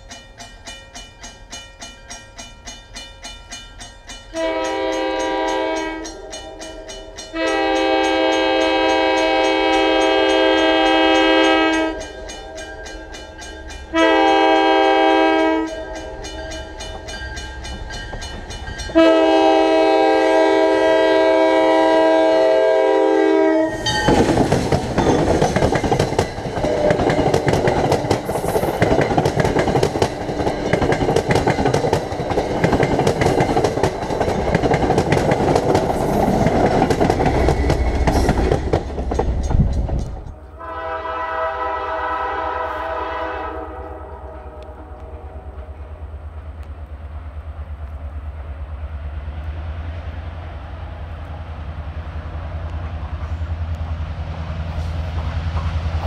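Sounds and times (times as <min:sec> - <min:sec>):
wheels clacking over rail joints: 0:00.0 - 0:19.5, 0:23.8 - 0:40.4
crossing bell ringing: 0:00.0 - 0:19.7, 0:23.7 - 0:28.5
train engine and wheel noise: 0:00.0 - 0:56.0
train air horn blasts: 0:04.3 - 0:12.1, 0:13.9 - 0:16.4, 0:18.9 - 0:24.2, 0:26.6 - 0:28.8, 0:40.3 - 0:45.8.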